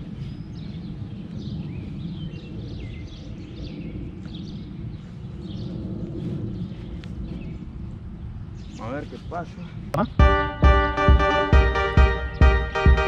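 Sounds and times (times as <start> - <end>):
small birds chirping: 0.0 - 10.4.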